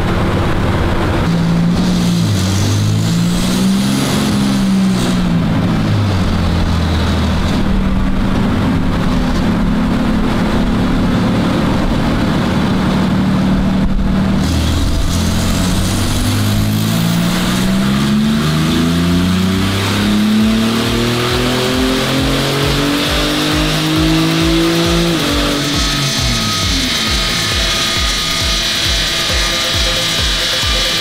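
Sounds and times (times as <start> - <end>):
car engine running on dyno: 0.0 - 31.0
faint high turbo whistle: 25.0 - 31.0.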